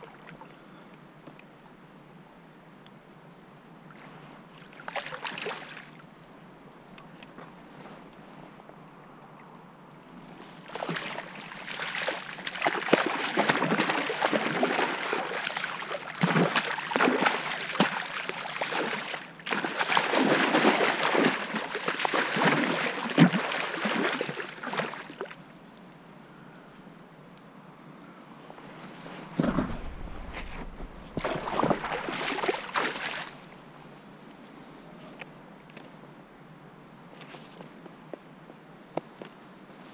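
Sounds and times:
fish splashing in water: 0:10.7 - 0:25.2, 0:29.4 - 0:33.4.

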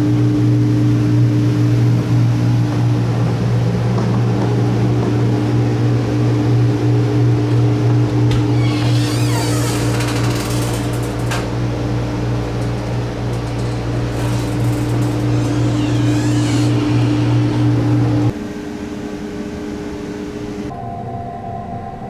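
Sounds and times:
ventilation hum: 0:00.0 - 0:20.8
train carriage noise: 0:01.8 - 0:18.4
door clicks and squeak: 0:08.3 - 0:11.6, 0:13.4 - 0:18.2
door shutting: 0:08.3 - 0:11.7, 0:12.6 - 0:18.4.

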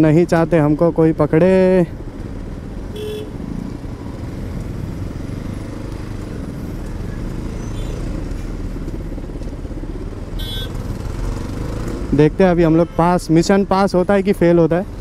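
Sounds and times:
motorcycle engine at low revs: 0:02.0 - 0:12.4
short horn beep: 0:10.4 - 0:10.8.

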